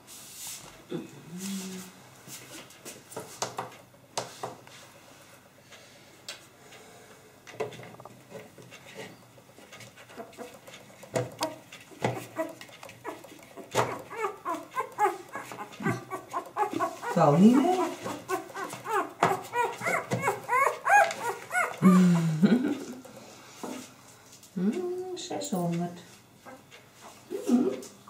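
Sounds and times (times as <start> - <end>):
knocks and rustles of handling: 7.5 - 21.6
puppy squeaking and whimpering: 11.4 - 22.2.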